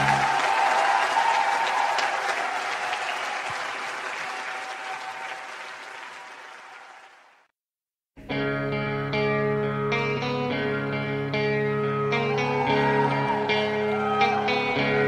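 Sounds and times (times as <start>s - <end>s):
audience applauding: 0.0s - 7.5s, 12.2s - 15.0s.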